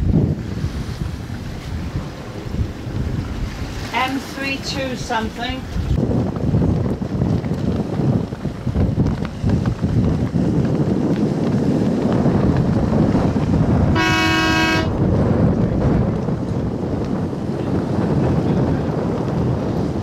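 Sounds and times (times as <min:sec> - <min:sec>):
wind buffeting microphone: 0:00.0 - 0:20.0
short horn blast: 0:13.9 - 0:15.0.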